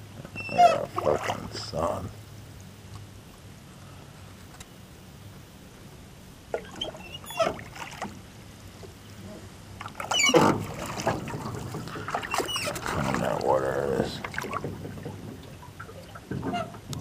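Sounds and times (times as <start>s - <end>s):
boat motor humming: 0.0s - 17.0s.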